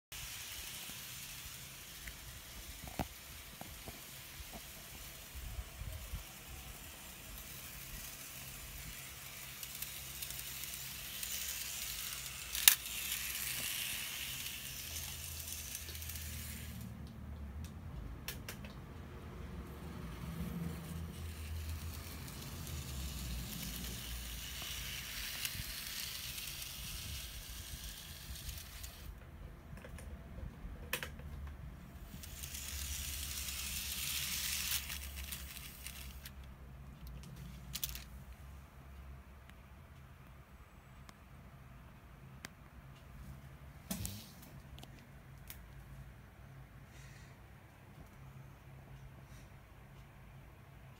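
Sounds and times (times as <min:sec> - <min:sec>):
model train whirring: 0:00.1 - 0:17.1, 0:19.6 - 0:29.2, 0:32.0 - 0:36.4, 0:37.7 - 0:38.1.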